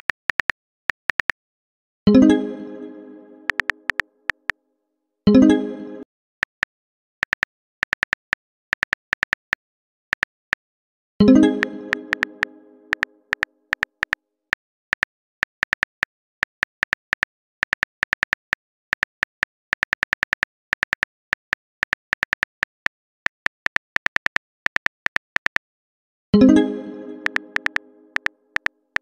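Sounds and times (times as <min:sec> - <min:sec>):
phone keyboard typing clicks: 0:00.0 - 0:01.4, 0:03.5 - 0:04.5, 0:07.2 - 0:10.3, 0:11.6 - 0:14.2, 0:14.9 - 0:25.6, 0:27.2 - 0:29.0
message chime: 0:11.2 - 0:13.0, 0:26.4 - 0:28.2.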